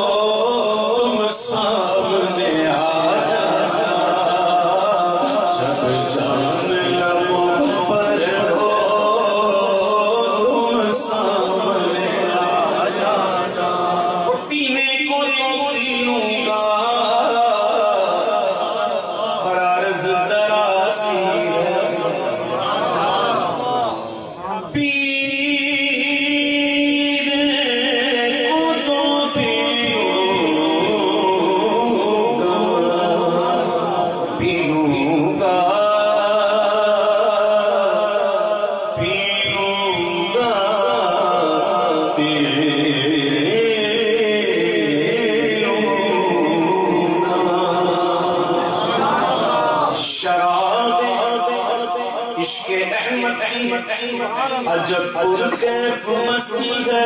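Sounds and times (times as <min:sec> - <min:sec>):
man singing into a microphone: 0:00.0 - 0:57.0.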